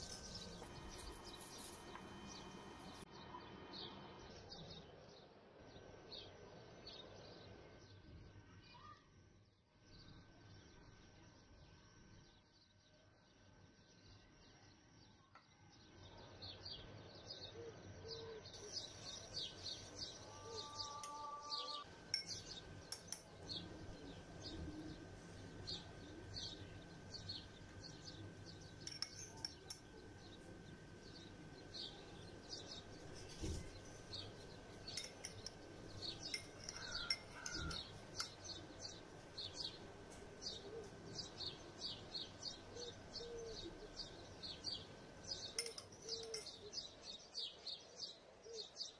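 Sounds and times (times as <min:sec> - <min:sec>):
thin steady high tone: 0:00.0 - 0:03.1, 0:18.6 - 0:47.0
small birds chirping: 0:00.0 - 0:05.2, 0:16.5 - 0:48.9.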